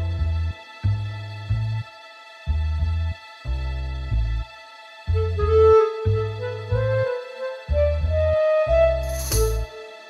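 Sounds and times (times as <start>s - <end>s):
slow rising melody: 5.1s - 10.0s.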